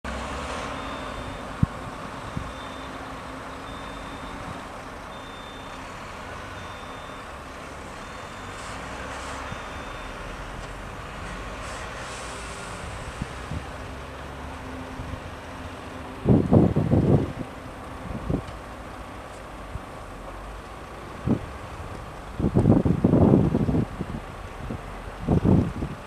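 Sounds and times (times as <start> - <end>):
diesel engine running: 0.1 - 26.0
reversing alarm beeping: 0.6 - 10.2.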